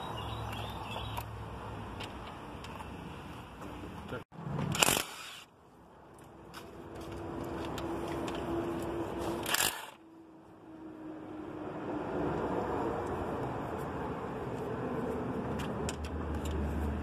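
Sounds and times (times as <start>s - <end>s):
impact wrench bursts: 4.7s - 5.5s, 9.4s - 10.0s.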